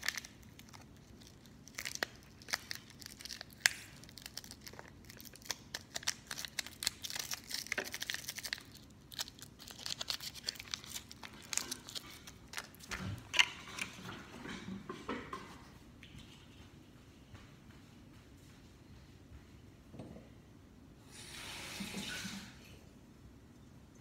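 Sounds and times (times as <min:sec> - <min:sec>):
toy packet crinkling: 0:00.0 - 0:13.5.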